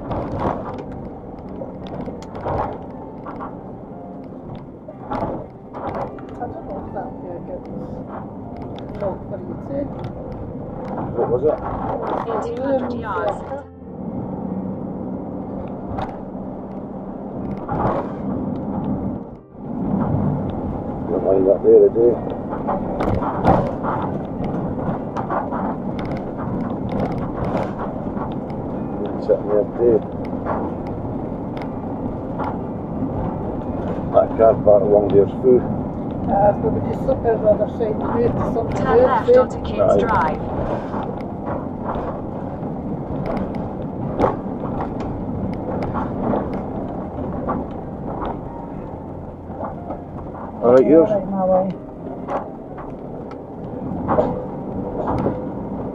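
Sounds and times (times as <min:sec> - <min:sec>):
small clicks and rattles: 0:00.0 - 0:13.7, 0:22.0 - 0:34.2, 0:35.0 - 0:51.1
engine and road rumble: 0:00.0 - 0:55.9.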